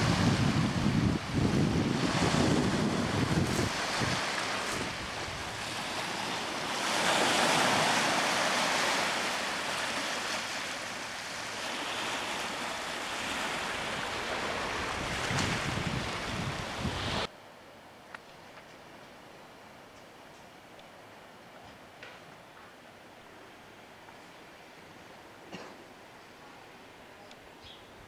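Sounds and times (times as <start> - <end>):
wind buffeting microphone: 0.0 - 9.0, 13.2 - 17.3
waves breaking on pebbly beach: 0.0 - 17.3.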